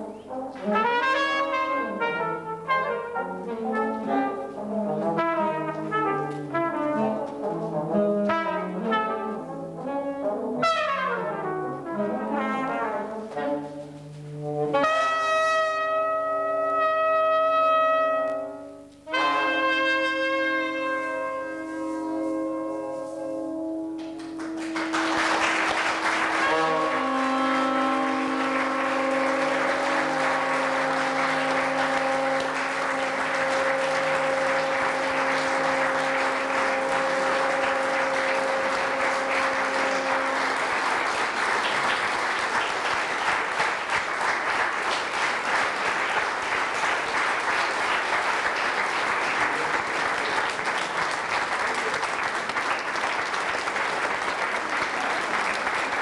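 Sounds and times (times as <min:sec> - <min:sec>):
wind instruments holding chord: 0:00.0 - 0:56.0
audience applause: 0:24.0 - 0:56.0.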